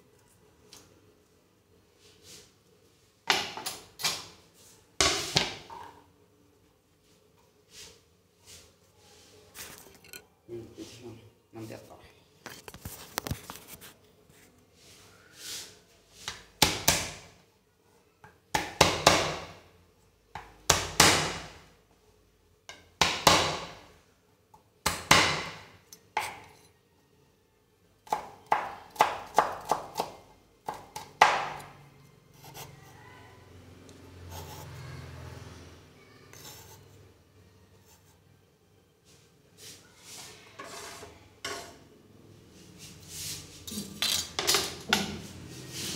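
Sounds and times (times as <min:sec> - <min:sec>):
knife chopping on cutting board: 0:28.1 - 0:31.7
faint steady scraping: 0:34.2 - 0:38.4, 0:39.0 - 0:43.8.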